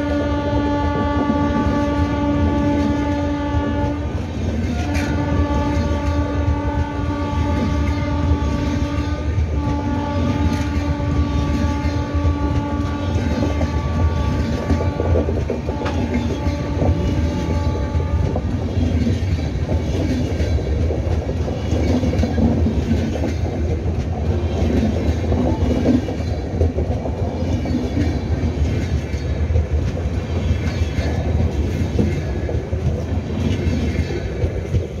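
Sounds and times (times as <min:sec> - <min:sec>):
locomotive horn: 0:00.0 - 0:18.8
train wheels clattering over rail joints: 0:01.0 - 0:35.0.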